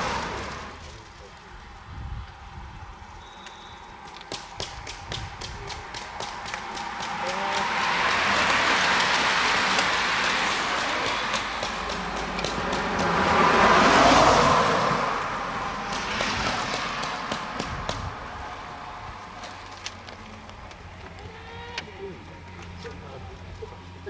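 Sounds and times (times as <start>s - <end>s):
car driving past: 0.0s - 1.0s, 6.0s - 19.7s.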